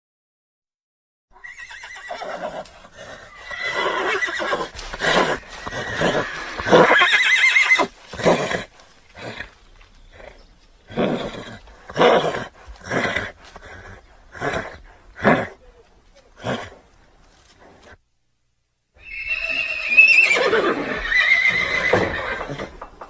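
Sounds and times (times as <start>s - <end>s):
horse neighing: 1.4s - 15.6s, 19.0s - 22.9s.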